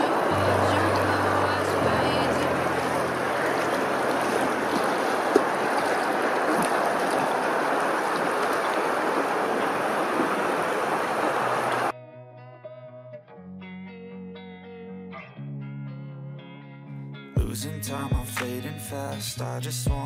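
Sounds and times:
water rushing and lapping: 0:00.0 - 0:11.9.

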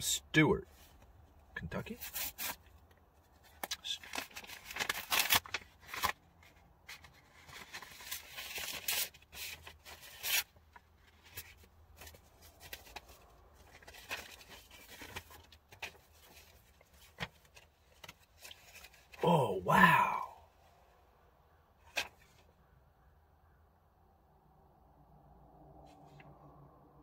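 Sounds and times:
paper envelope tearing: 0:02.0 - 0:02.6, 0:03.6 - 0:06.2, 0:07.0 - 0:11.5.

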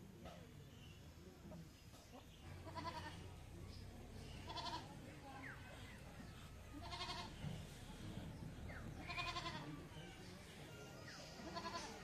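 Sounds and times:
goat bleating: 0:02.6 - 0:03.2, 0:04.5 - 0:04.9, 0:06.8 - 0:07.3, 0:09.0 - 0:09.7, 0:11.4 - 0:12.0.

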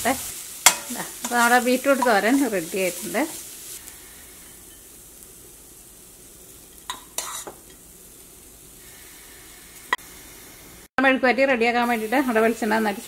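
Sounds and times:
faint sizzle: 0:00.0 - 0:13.0
metal spoon scraping pan: 0:00.6 - 0:02.5, 0:06.7 - 0:07.8.

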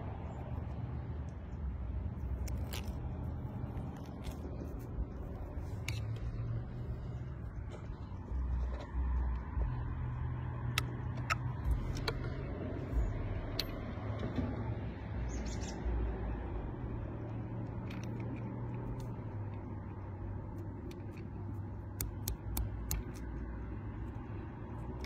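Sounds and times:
low outdoor rumble: 0:00.0 - 0:25.0
padlock clicks and taps: 0:10.7 - 0:12.3.

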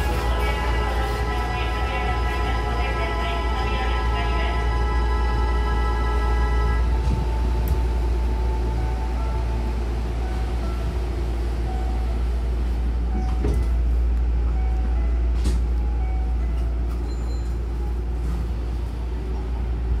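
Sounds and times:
low train rumble: 0:00.0 - 0:20.0
train doors sliding shut: 0:06.8 - 0:08.3, 0:10.1 - 0:14.0, 0:15.2 - 0:15.8.

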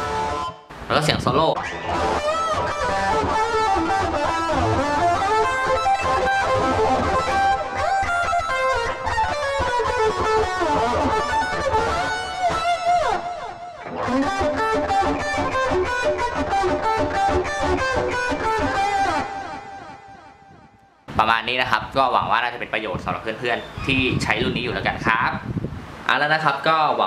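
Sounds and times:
electric guitar solo: 0:00.0 - 0:21.0.

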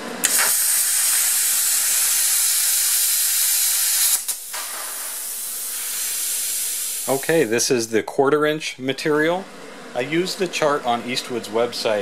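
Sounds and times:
hiss of air: 0:00.2 - 0:07.7
plasma cutter hissing: 0:00.2 - 0:07.7.

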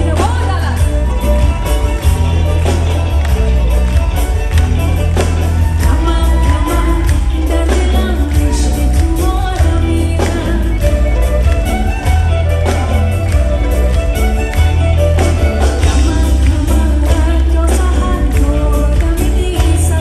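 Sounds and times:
live band playing pop music: 0:00.0 - 0:20.0
woman singing into a microphone: 0:05.8 - 0:11.3, 0:15.7 - 0:20.0.

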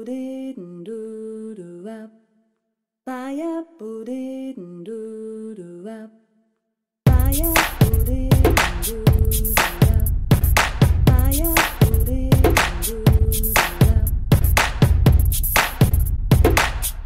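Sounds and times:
music with a beat: 0:07.1 - 0:17.0.

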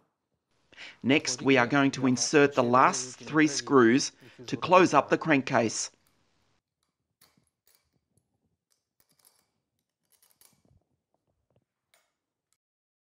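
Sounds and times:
small metal parts clicking: 0:08.7 - 0:10.6.

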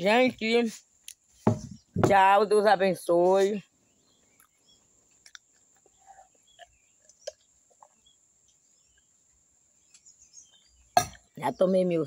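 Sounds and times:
faint bird chirps: 0:03.0 - 0:12.0.

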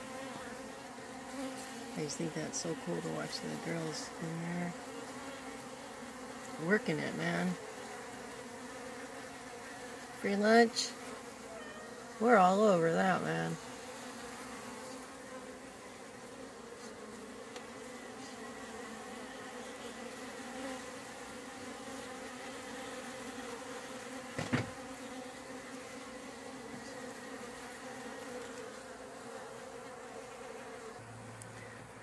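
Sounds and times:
honey bees buzzing: 0:00.0 - 0:32.0
brief knock: 0:24.4 - 0:24.8.

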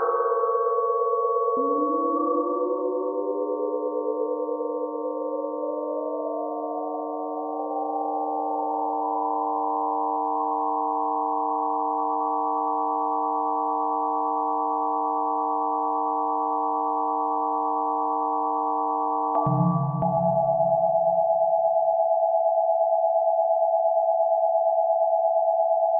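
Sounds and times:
electronic sine tone chord: 0:01.5 - 0:22.5.

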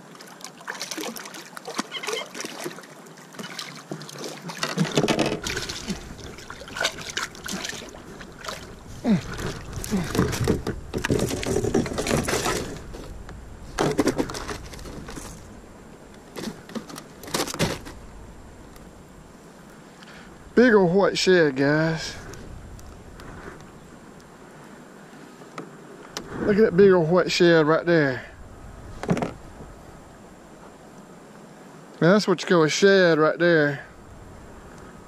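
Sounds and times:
fish thrashing and splashing: 0:00.3 - 0:13.1
knocks against canoe hull: 0:04.6 - 0:06.0, 0:09.3 - 0:12.9, 0:13.8 - 0:14.7, 0:16.4 - 0:18.0, 0:29.0 - 0:29.4.

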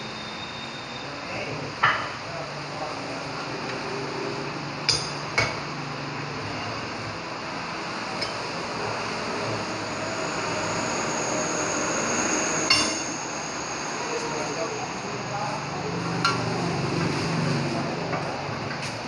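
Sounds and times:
workshop noise: 0:03.5 - 0:10.8, 0:12.5 - 0:19.0.

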